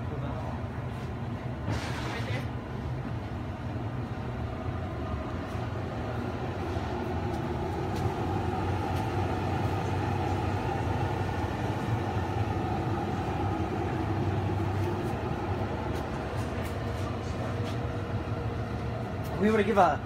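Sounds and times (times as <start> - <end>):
fan motor humming and whirring: 0.0 - 20.0.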